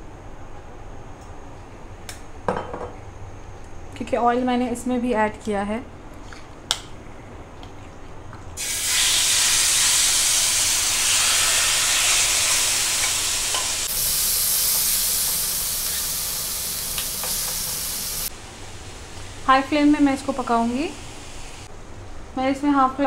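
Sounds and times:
chicken sizzling in hot oil: 0:08.6 - 0:19.5.

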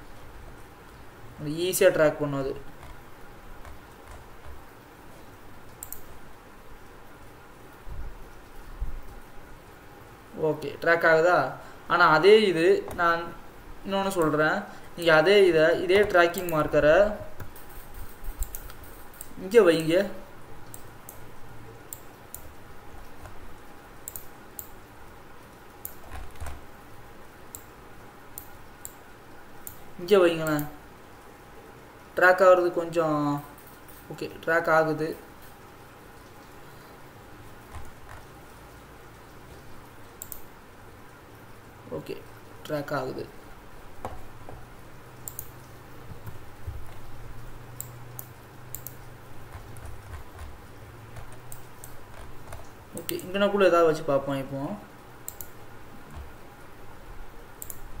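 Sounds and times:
faint steady hum: 0:00.0 - 0:58.0
computer mouse clicks: 0:03.6 - 0:04.6, 0:05.7 - 0:06.1, 0:17.4 - 0:19.4, 0:21.9 - 0:23.4, 0:24.0 - 0:24.8, 0:25.8 - 0:26.6, 0:27.5 - 0:27.7, 0:29.6 - 0:29.8, 0:37.7 - 0:38.3, 0:40.1 - 0:40.5, 0:45.2 - 0:47.1, 0:47.8 - 0:53.3, 0:55.2 - 0:56.4, 0:57.6 - 0:57.9.

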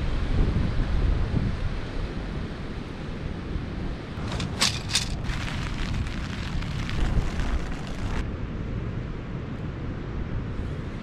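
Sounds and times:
wind buffeting microphone: 0:00.2 - 0:08.3
sharp crackling rustles: 0:04.1 - 0:08.2.

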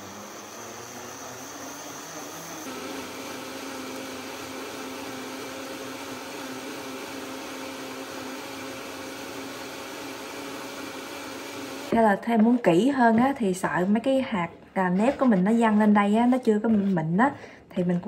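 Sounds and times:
blender motor whirring: 0:00.0 - 0:12.0.

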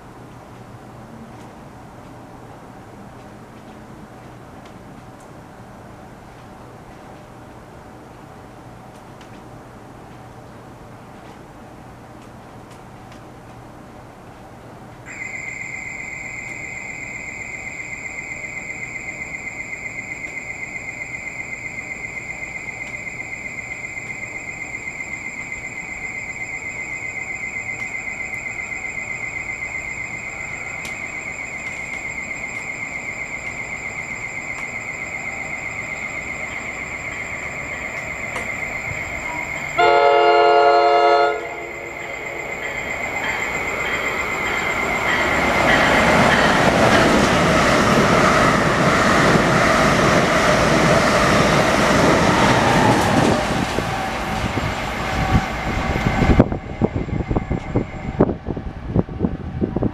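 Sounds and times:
train rumble: 0:00.0 - 0:59.9
pulsing electronic warning tone: 0:15.1 - 0:59.0
train horn blast: 0:39.2 - 0:42.5.

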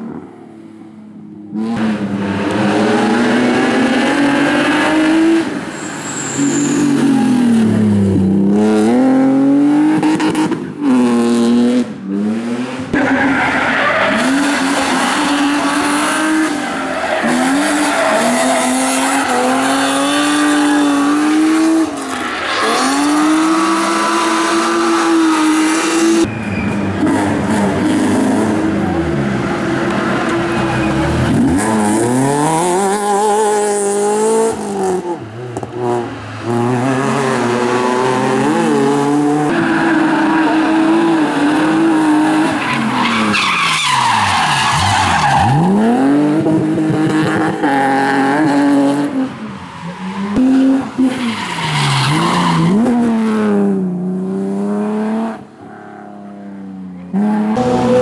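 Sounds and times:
car engine revving hard: 0:01.6 - 0:05.6
tyre squeal and skidding: 0:05.6 - 0:07.6, 0:12.9 - 0:27.4, 0:30.2 - 0:32.6, 0:39.5 - 0:46.1, 0:49.4 - 0:53.0.

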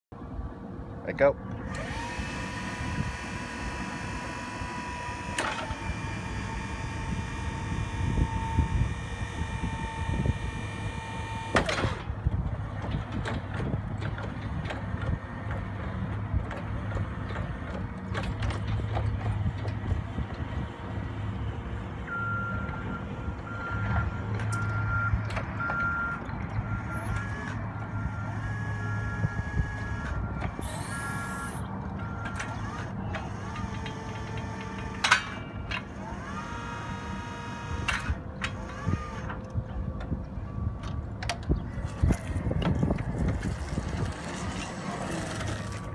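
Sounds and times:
electric motor hum: 0:01.6 - 0:17.9, 0:26.8 - 0:39.3
electric drive whine: 0:01.6 - 0:18.4, 0:26.6 - 0:40.2.

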